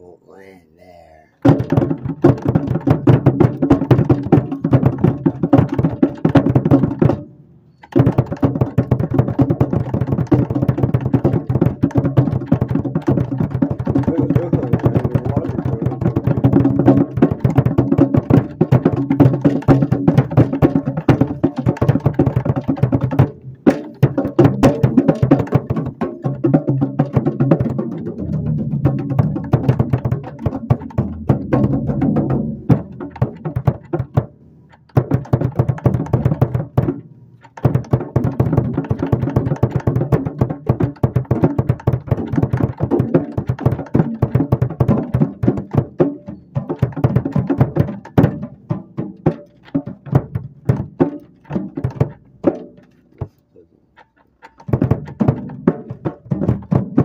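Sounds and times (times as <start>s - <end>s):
drum kit playing: 1.4s - 7.2s, 8.0s - 53.4s.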